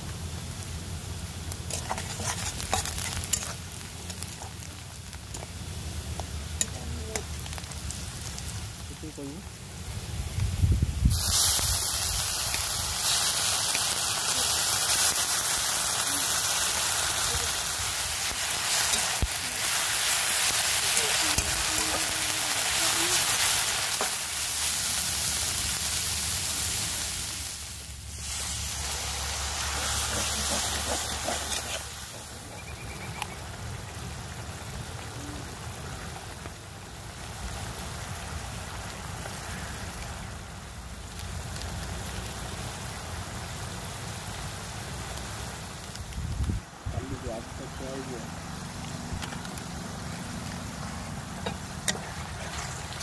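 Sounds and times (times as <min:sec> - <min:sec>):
onions sizzling in hot oil: 0:00.0 - 0:53.0
metal spatula stirring: 0:01.7 - 0:04.6.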